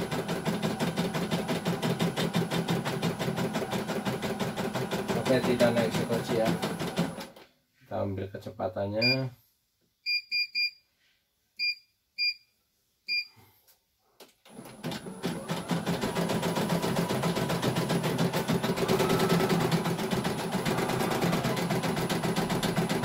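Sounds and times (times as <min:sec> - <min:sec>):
embroidery machine stitching: 0:00.0 - 0:07.3, 0:14.5 - 0:23.0
control panel beeps: 0:09.0 - 0:09.3, 0:10.1 - 0:10.8.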